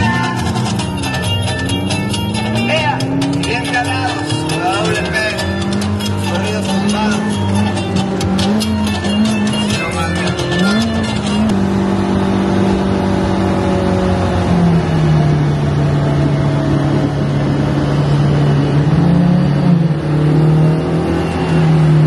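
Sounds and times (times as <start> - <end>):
car engine and exhaust droning: 0.0 - 22.0
road noise: 0.0 - 22.0.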